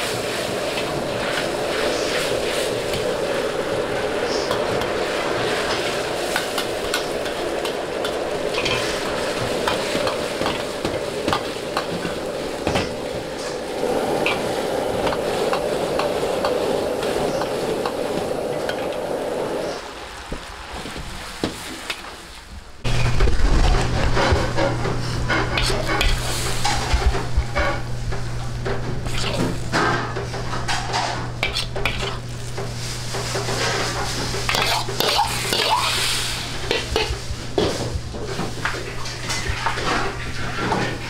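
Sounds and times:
metal ladle scraping a wok: 30.7s - 32.6s.

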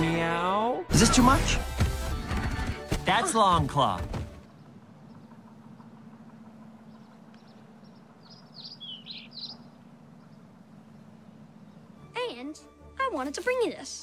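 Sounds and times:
steady low hum: 3.6s - 12.9s
small bird chirps: 4.6s - 12.1s.

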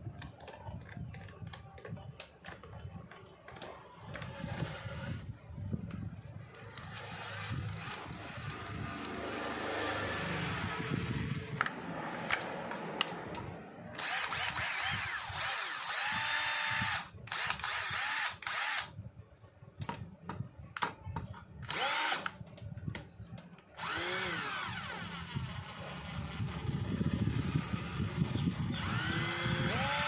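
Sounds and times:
cordless drill motor whining: 3.6s - 11.7s, 14.0s - 18.9s, 21.6s - 22.4s, 23.6s - 30.0s.

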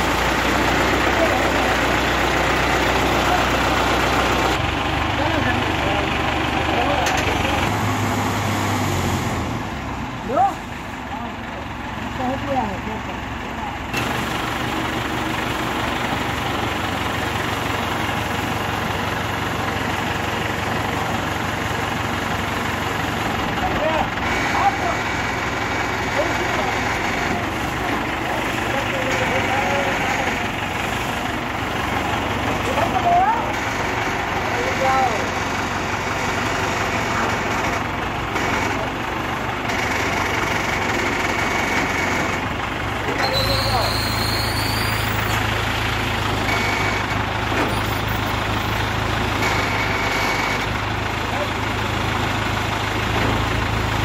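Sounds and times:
crane engine drone: 0.0s - 54.0s.

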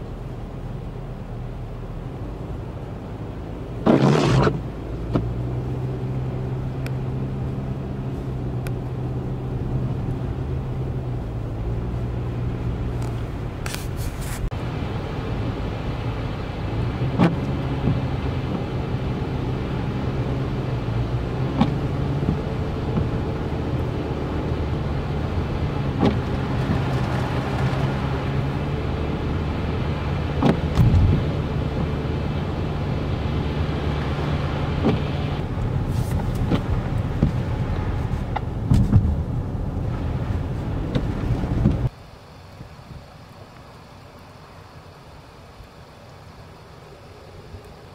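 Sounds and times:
engine hum: 0.0s - 47.9s
tyre noise on slush: 3.9s - 4.7s.

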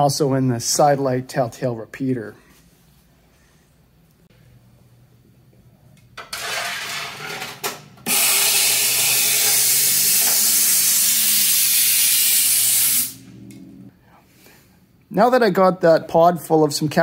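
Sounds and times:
air spray gun hissing: 8.1s - 13.2s.

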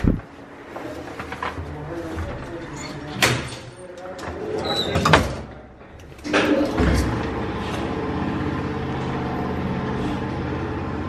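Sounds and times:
lift running hum: 5.8s - 11.0s
lift starting thump: 6.2s - 7.7s.

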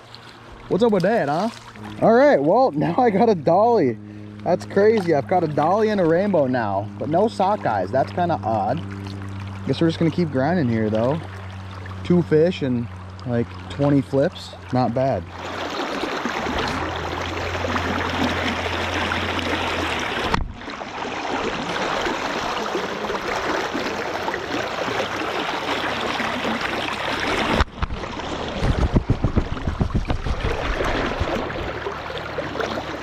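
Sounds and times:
fast river current rushing: 15.3s - 28.7s, 30.2s - 33.0s.

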